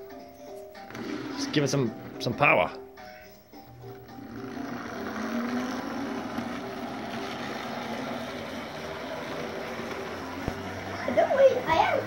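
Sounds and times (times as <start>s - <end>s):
wheels rolling on rails: 4.0s - 12.0s
model train motor whirring: 4.2s - 11.8s.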